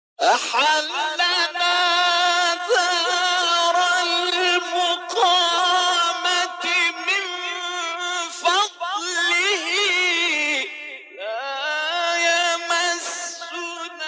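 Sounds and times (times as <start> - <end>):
man chanting melismatically: 0.2 - 14.0.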